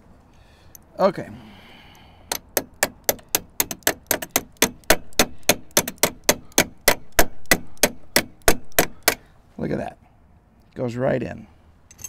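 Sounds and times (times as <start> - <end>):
hammer tapping metal on metal: 2.3 - 9.2.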